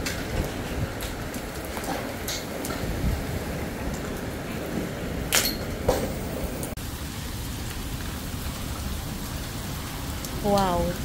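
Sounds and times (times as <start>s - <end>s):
hail hitting the ground: 0.0s - 11.0s
sharp hail hits: 0.0s - 11.0s.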